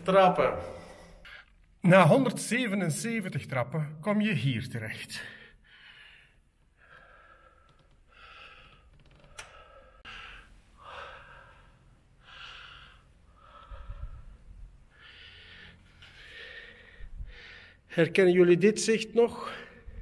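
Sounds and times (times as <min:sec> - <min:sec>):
man breathing hard: 0:05.4 - 0:17.9.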